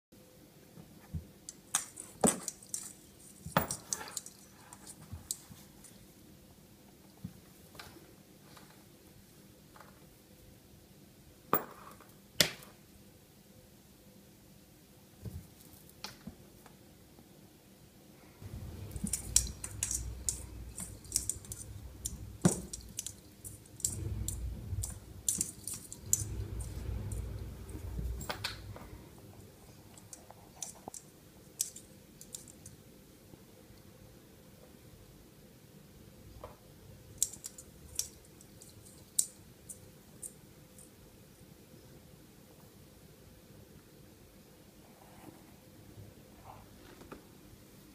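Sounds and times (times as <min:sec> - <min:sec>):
ornament clicking and clinking: 0:01.5 - 0:05.5, 0:18.4 - 0:29.0, 0:29.6 - 0:32.8, 0:37.1 - 0:41.0
bauble clicking on branches: 0:18.4 - 0:27.4
low rumble: 0:18.4 - 0:29.7.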